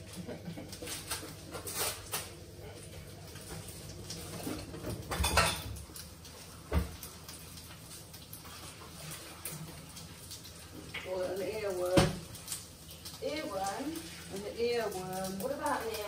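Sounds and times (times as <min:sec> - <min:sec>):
pots and pans clattering: 0:03.4 - 0:06.0.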